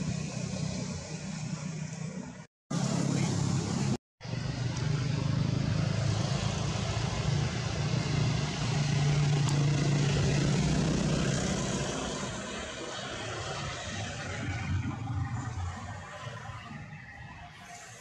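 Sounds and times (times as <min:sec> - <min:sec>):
vehicle engine droning: 0:00.0 - 0:18.0.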